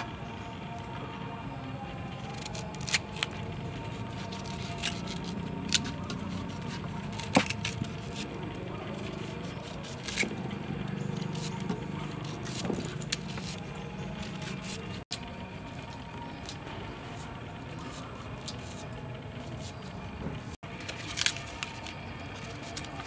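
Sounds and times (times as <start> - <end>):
knife cutting crisp fruit: 2.2 - 15.2.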